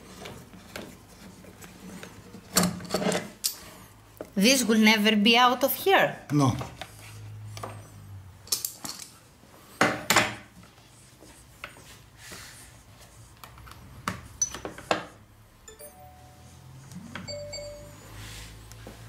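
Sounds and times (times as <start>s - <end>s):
short electronic beeps: 17.3s - 18.2s.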